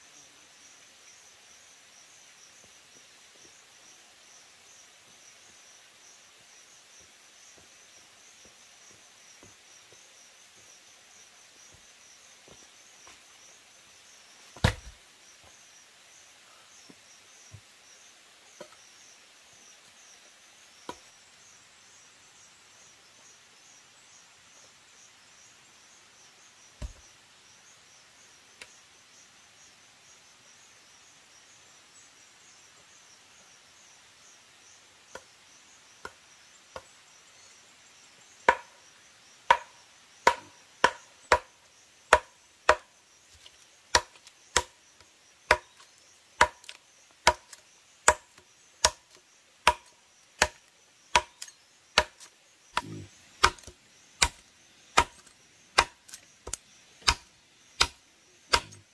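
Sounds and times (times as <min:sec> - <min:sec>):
insects chirping: 0:00.0 - 0:58.9
wood being chopped: 0:14.6 - 0:15.0, 0:26.8 - 0:27.0, 0:38.5 - 0:38.7, 0:39.5 - 0:41.5, 0:42.1 - 0:44.8, 0:45.5 - 0:58.8.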